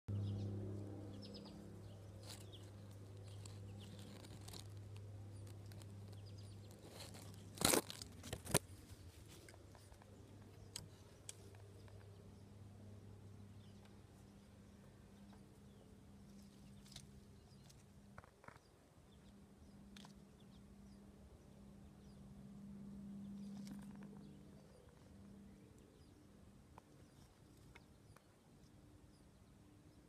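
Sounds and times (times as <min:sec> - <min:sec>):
steady low hum: 0:00.1 - 0:30.0
sharp crackling noises: 0:00.8 - 0:12.5.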